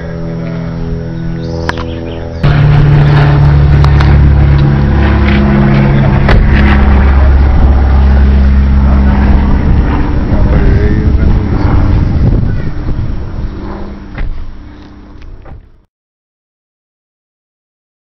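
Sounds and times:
low engine drone: 0.0s - 15.9s.

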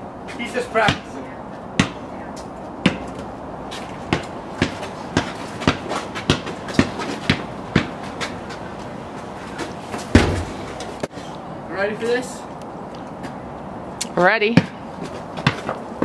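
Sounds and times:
basketball dribbling: 1.8s - 2.0s, 4.1s - 8.9s, 10.0s - 10.7s, 15.4s - 15.8s
loud thud: 10.1s - 10.6s.

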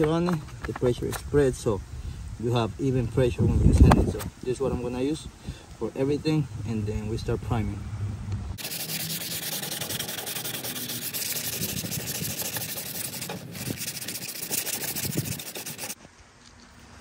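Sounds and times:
sanding sponge scratching metal: 8.6s - 16.0s.

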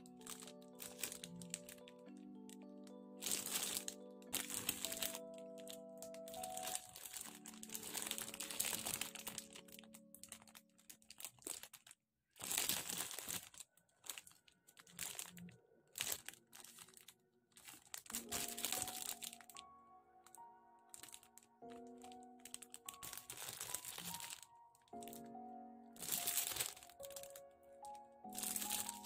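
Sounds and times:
soft background music: 0.0s - 11.8s, 12.4s - 29.0s
plastic bags crinkling: 0.0s - 29.0s.

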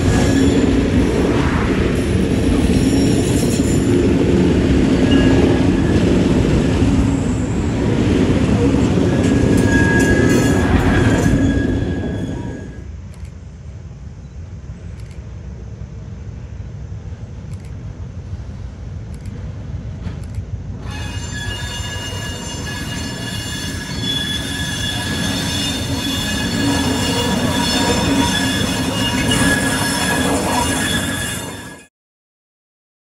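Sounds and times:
shrill wheel squeal: 0.0s - 1.2s, 2.4s - 4.0s, 8.6s - 12.9s, 20.8s - 31.9s
locomotive engine rumble: 0.0s - 31.5s.

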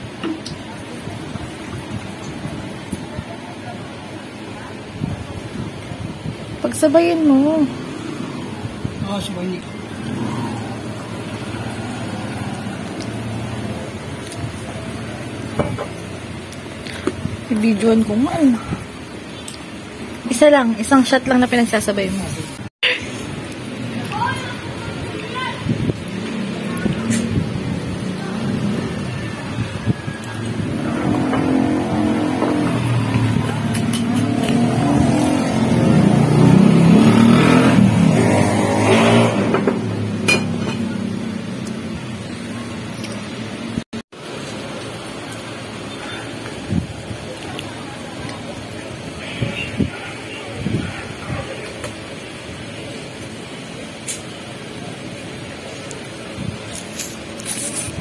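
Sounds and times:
vehicle engine revving: 9.6s - 15.5s, 30.3s - 43.8s.

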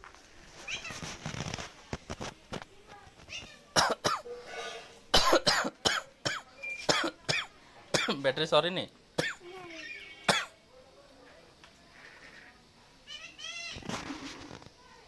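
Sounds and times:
cough-like voice bursts: 3.8s - 4.3s, 5.1s - 8.2s.

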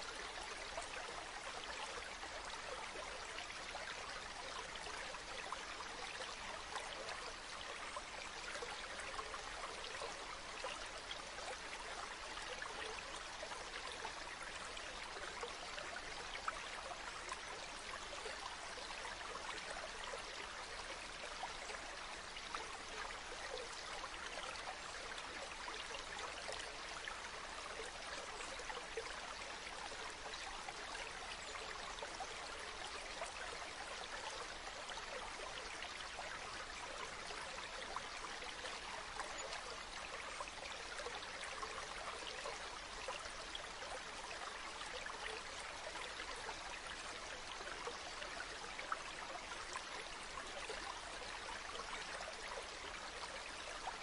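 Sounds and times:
stream running over pebbles: 0.0s - 54.0s.

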